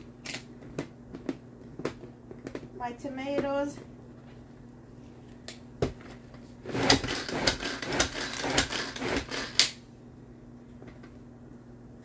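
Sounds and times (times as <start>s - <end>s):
hand chopper blades whirring: 6.7s - 9.7s.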